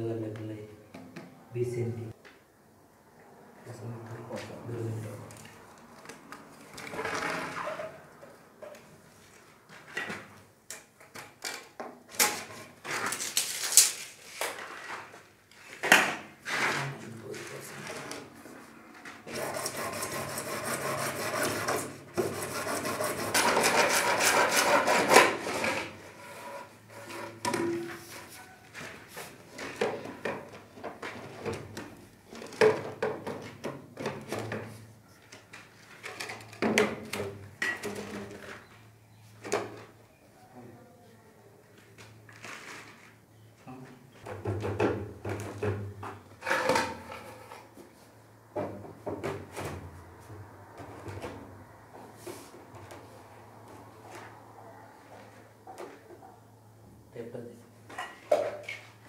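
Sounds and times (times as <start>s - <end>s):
hacksaw sawing plastic pipe: 19.2s - 27.4s.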